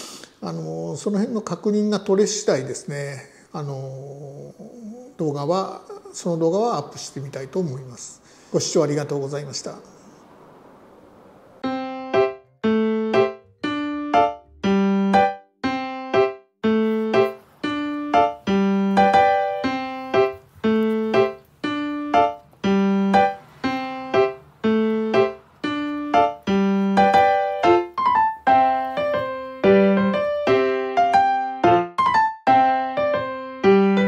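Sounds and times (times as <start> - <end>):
piano-like keyboard chords: 11.6 - 34.0.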